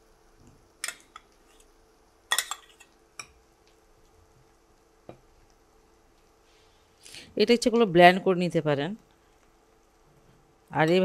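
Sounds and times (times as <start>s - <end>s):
metal spoon clinking ceramic bowl: 2.3s - 3.3s.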